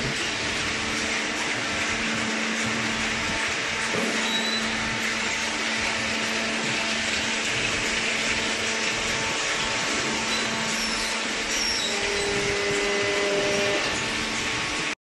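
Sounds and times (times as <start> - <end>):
industrial machinery whirring: 0.0 - 15.0.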